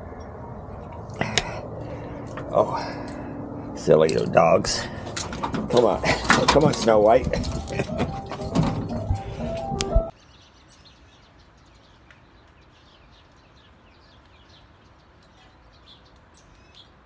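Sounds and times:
birds chirping: 0.0 - 17.0
doorway clatter and thump: 4.9 - 9.9.

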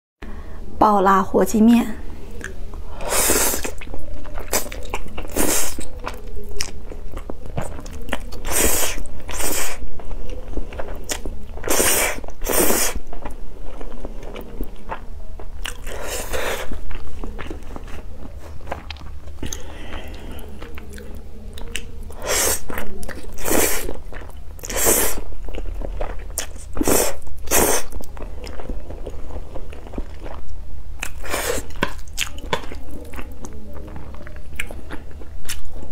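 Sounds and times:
person chewing: 2.3 - 35.9
person slurping noodles: 3.0 - 5.9, 8.4 - 9.8, 11.6 - 13.1, 15.8 - 16.8, 22.1 - 24.0, 24.6 - 25.2, 26.8 - 28.0, 31.2 - 31.8.

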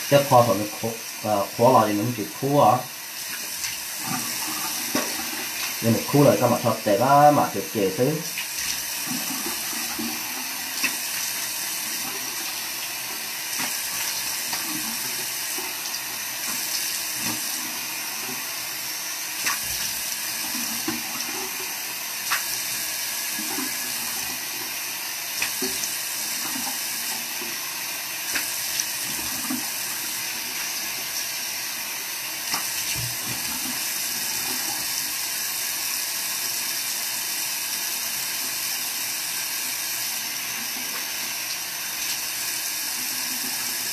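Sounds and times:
tap running into sink: 3.2 - 5.8
splashes from face rinsing: 19.4 - 21.6, 22.3 - 22.8.

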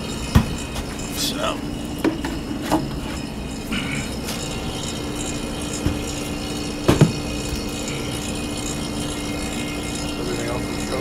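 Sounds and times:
refrigeration compressor humming: 0.0 - 11.0.

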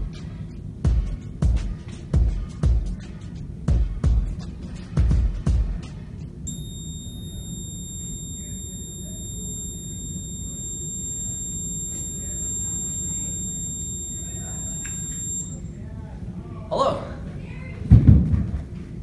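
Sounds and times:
high-pitched electronic tone: 6.5 - 15.7.

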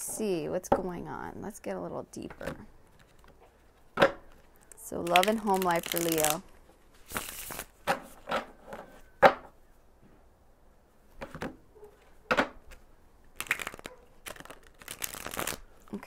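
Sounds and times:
cards being shuffled: 2.4 - 8.3, 12.6 - 16.0.

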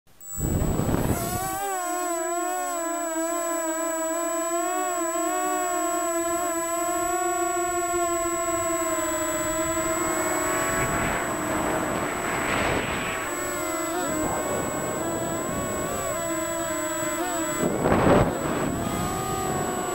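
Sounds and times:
drone motors whining: 0.1 - 19.9
thin high steady tone: 0.1 - 19.9
wind rushing noise: 9.4 - 15.8.

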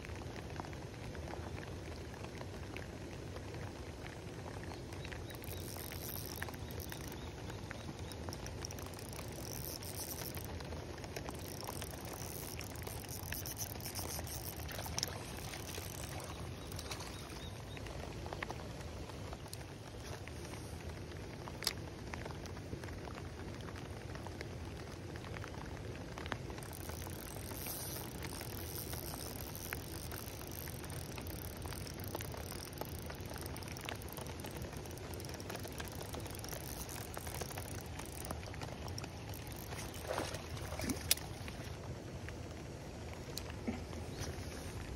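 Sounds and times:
rain pattering on pond: 0.0 - 44.9
sharp ticks: 5.3 - 17.5, 26.5 - 40.2.

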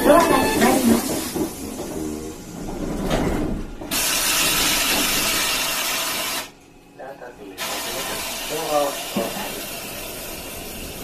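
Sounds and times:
compressed air hissing: 7.6 - 11.0.

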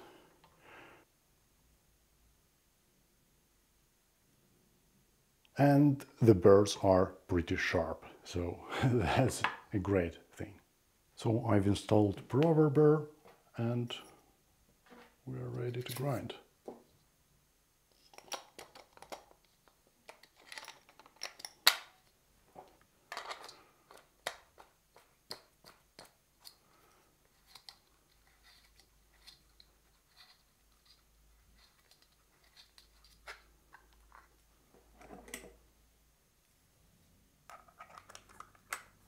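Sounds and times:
metal parts clicking and knocking: 18.0 - 22.2.

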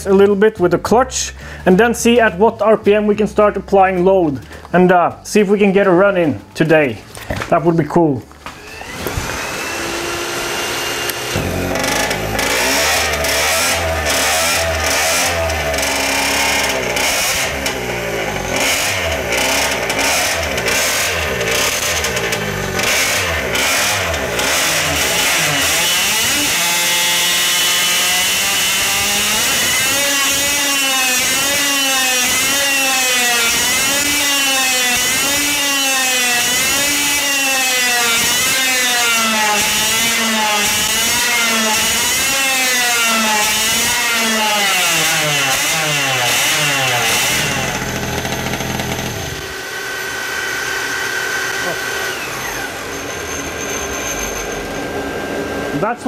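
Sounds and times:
two-stroke moped engine running: 10.8 - 29.4, 45.5 - 53.0.

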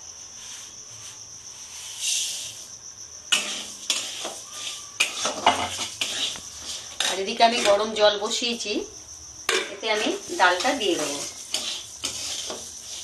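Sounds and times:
metal spatula scraping a pan: 1.6 - 2.7, 3.3 - 8.3, 9.5 - 13.0
dal poured into hot oil hissing: 9.8 - 13.0.

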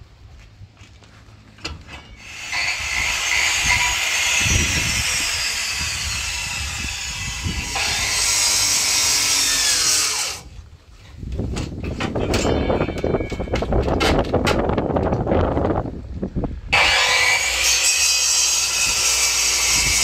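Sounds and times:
power tool cutting: 2.2 - 10.5, 16.8 - 20.0.

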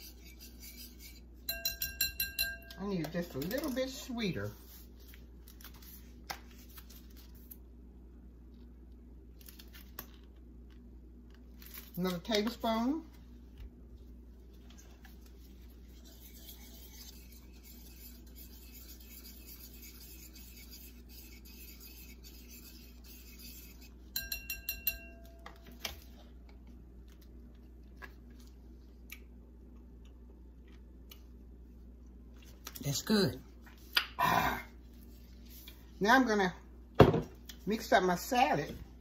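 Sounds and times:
whisk clinking against bowl: 0.0 - 2.8, 16.0 - 25.4
wire whisk scraping bowl: 0.0 - 4.1, 15.8 - 25.2.

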